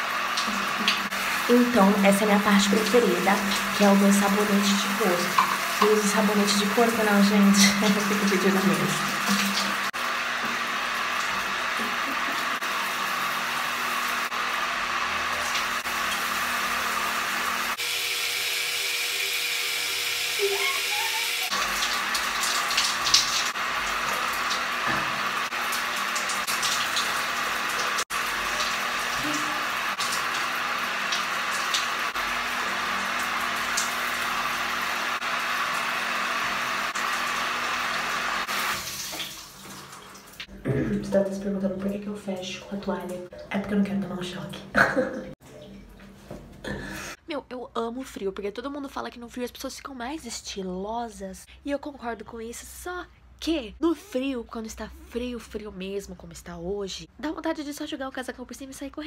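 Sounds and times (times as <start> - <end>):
shower water running: 0.0 - 47.2.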